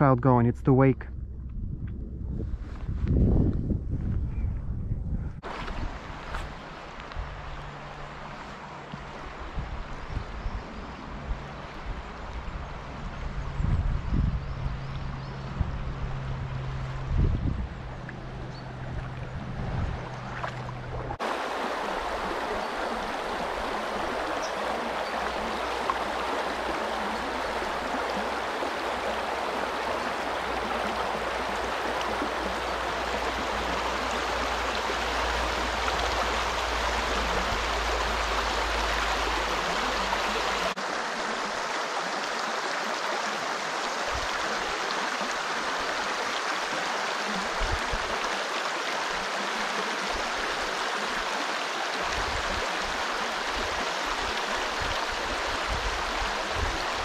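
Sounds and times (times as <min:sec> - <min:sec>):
river flowing over stones: 0:05.4 - 0:10.1, 0:17.7 - 0:57.0.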